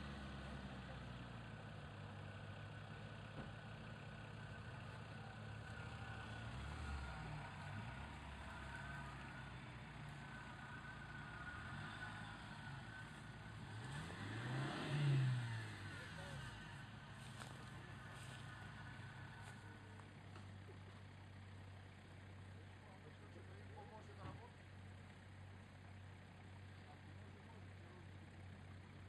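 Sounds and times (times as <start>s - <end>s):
engine revving: 5.6s - 20.0s.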